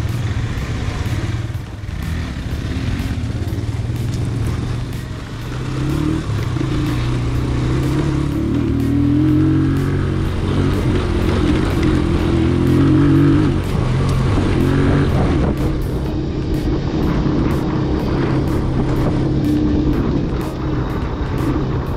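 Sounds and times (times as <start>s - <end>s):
motorcycle engine revving: 0.0s - 21.9s.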